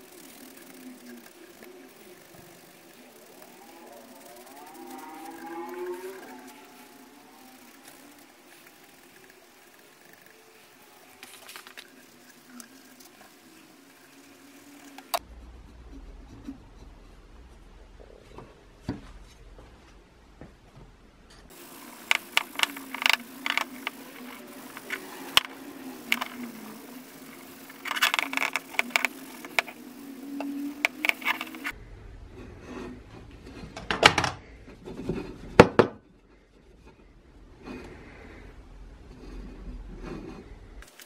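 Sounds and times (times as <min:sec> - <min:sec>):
low hum: 0:00.0 - 0:33.8
clicks and scrapes: 0:21.3 - 0:34.0
cloth rubbing on metal: 0:21.5 - 0:31.8.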